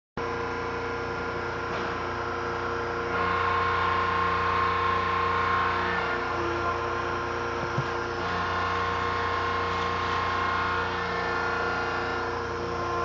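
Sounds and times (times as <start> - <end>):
hydraulic pump motor humming: 0.2 - 13.0
pump whine under load: 0.2 - 13.0.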